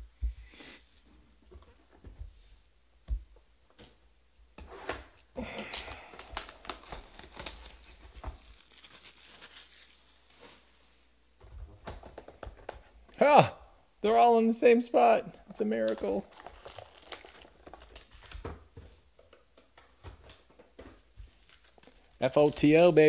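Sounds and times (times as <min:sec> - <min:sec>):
plastic wrapping tearing and crinkling: 0:05.6 - 0:10.3, 0:15.8 - 0:18.5, 0:21.4 - 0:23.0.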